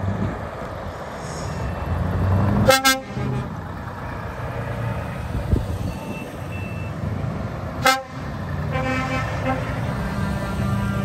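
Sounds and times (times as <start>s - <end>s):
lorry engines running: 0.0s - 11.0s
lorry horn blast: 7.8s - 11.0s.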